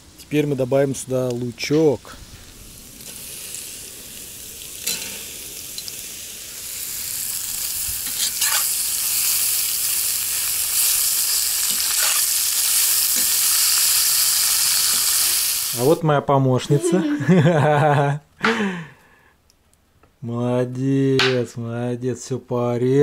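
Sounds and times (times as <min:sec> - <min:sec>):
onion sizzling in hot fat: 0:00.1 - 0:16.0
metal spatula scraping: 0:08.0 - 0:08.8, 0:11.7 - 0:12.3.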